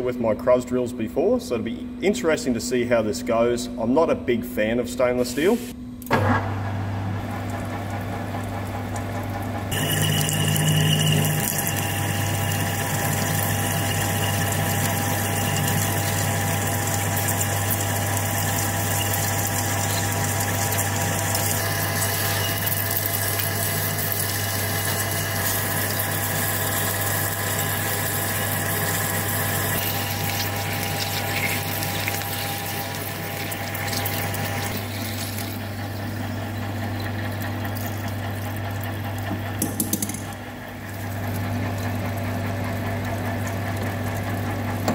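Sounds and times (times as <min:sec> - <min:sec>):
lathe machine hum: 0:06.4 - 0:39.6
drill cutting steel: 0:09.7 - 0:35.7.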